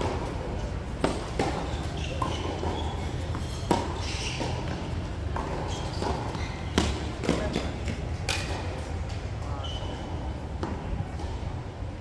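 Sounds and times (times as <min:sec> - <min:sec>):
tennis ball struck and bouncing: 0:01.0 - 0:08.6.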